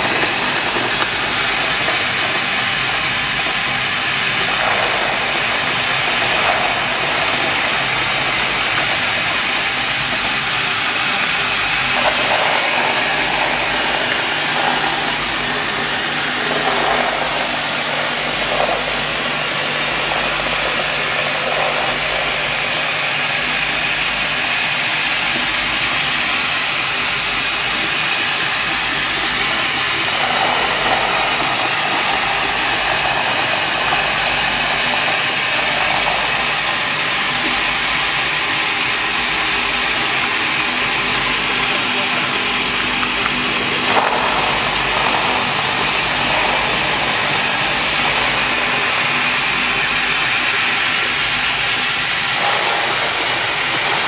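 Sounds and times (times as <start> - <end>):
vibrating conveyor hum: 0.0 - 54.0.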